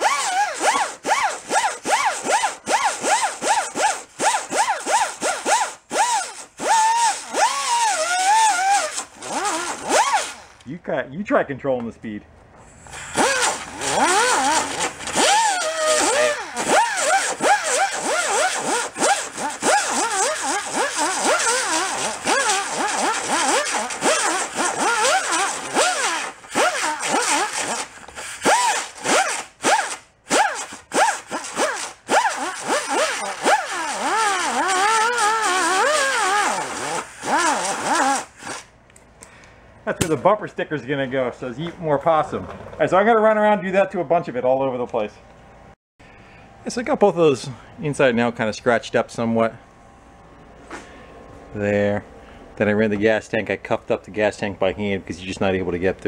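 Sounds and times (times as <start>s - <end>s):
die grinder sanding fiberglass: 0.0s - 10.4s, 13.0s - 38.7s.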